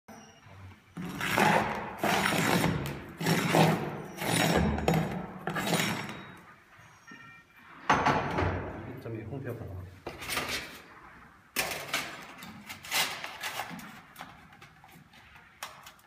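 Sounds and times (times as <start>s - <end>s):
rustling and scraping of shingles: 11.6s - 16.0s.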